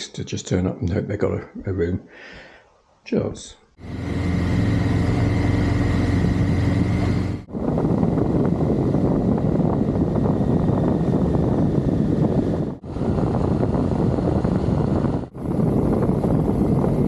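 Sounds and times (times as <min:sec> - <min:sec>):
motorcycle engine running: 0:03.8 - 0:17.0
wind rushing over microphone: 0:03.8 - 0:17.0.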